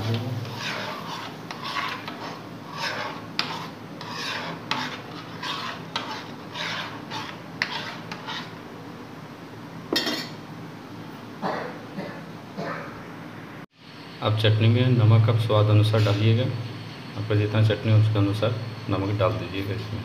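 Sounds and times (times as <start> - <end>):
spoon scraping metal pan: 0.0 - 8.6.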